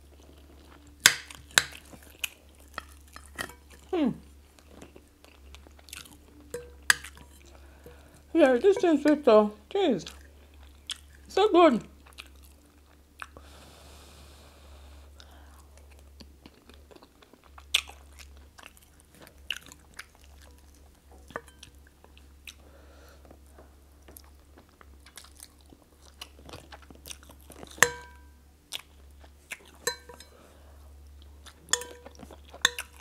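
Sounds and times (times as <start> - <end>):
chewing and biting: 4.5 - 7.5, 10.1 - 11.3, 24.1 - 30.0
metal spoon clinking on bowl: 6.5 - 7.2, 27.8 - 28.3, 29.8 - 30.4, 31.7 - 33.0.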